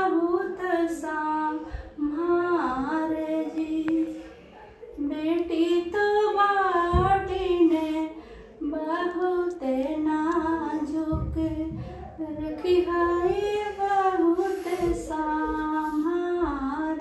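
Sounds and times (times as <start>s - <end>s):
woman singing unaccompanied: 0.0s - 4.3s, 4.9s - 17.0s.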